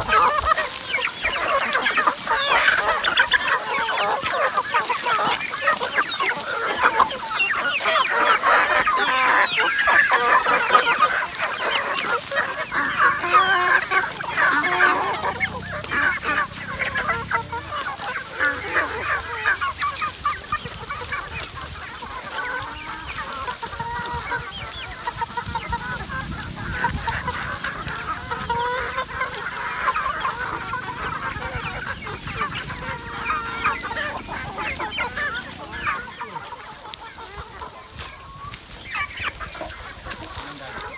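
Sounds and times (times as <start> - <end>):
chickens clucking and chirping: 0.0 - 40.9.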